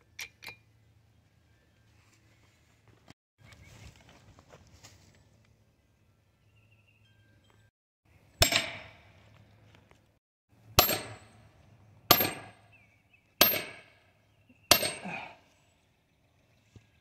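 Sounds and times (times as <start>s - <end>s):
tool striking wood with metallic ring: 8.4s - 9.2s, 10.8s - 11.5s, 12.1s - 12.8s, 13.4s - 14.1s, 14.7s - 15.2s.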